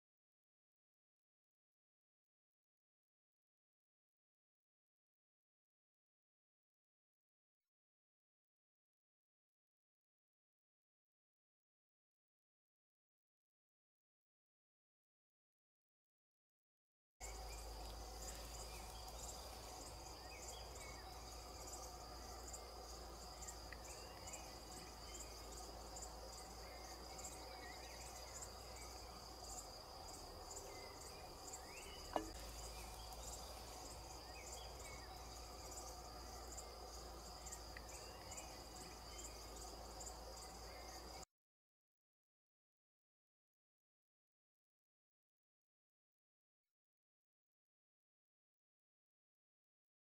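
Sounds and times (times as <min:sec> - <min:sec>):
faint low hum: 0:17.2 - 0:41.2
insects chirping: 0:17.2 - 0:41.2.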